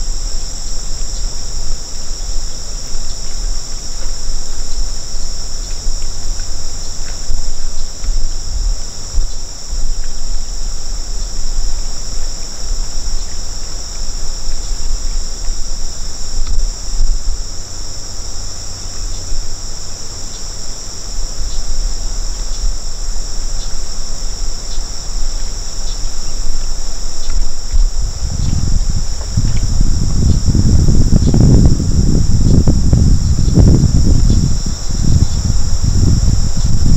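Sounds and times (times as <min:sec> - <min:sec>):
crickets trilling: 0:00.0 - 0:36.9
wind rumble on microphone: 0:00.0 - 0:36.9
loud low rumble: 0:26.0 - 0:36.9.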